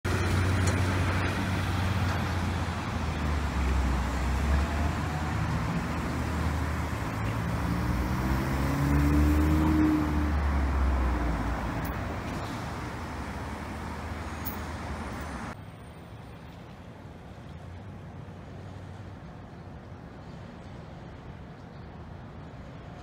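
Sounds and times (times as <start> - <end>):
city traffic noise: 0.0 - 23.0
vehicle engine rising in pitch: 1.2 - 14.3.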